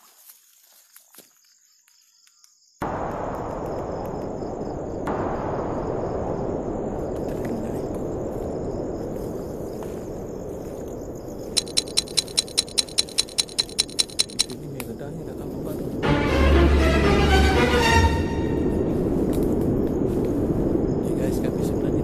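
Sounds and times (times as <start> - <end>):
night insects trilling: 0.1 - 16.0, 18.8 - 22.0
rapid sharp chirping: 11.3 - 14.6.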